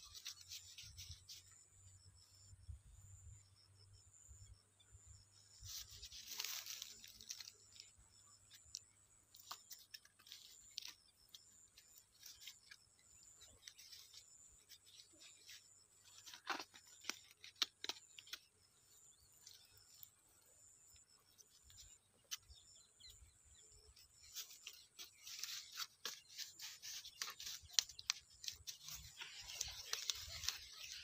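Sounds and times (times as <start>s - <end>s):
bait bundle crinkling: 24.4s - 31.0s.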